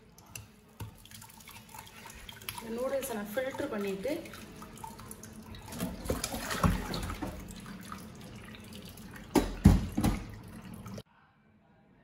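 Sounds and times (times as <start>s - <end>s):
water draining and dripping: 0.0s - 11.0s
loud knocks on metal sink: 9.3s - 10.3s.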